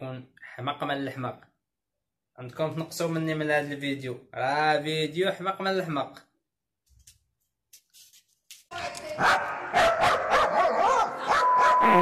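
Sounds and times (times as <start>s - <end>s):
dog barking: 9.1s - 11.9s.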